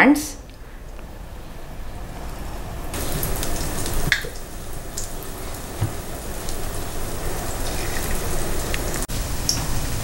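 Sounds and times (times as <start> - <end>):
batter frying in oil: 2.9 - 10.0.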